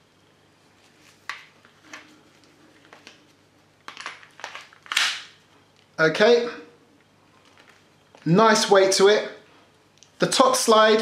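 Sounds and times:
magazine sliding clack: 4.9 - 5.3.

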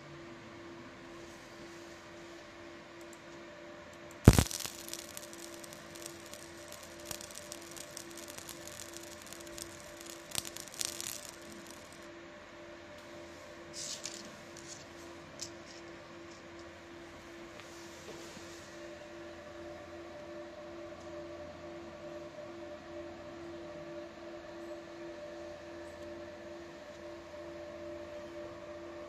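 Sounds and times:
machine hum: 2.8 - 12.9
crackling ticks: 4.3 - 12.0
sharp click: 4.3 - 12.0.

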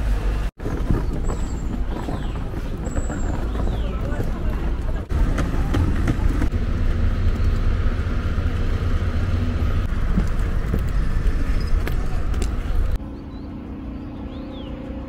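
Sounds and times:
wind rumble: 0.0 - 15.0
footsteps on stone paving: 0.6 - 6.5, 9.9 - 13.0.

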